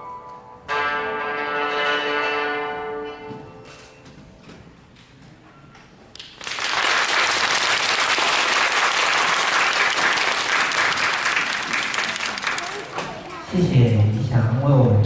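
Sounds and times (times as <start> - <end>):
audience applauding: 6.2 - 13.4.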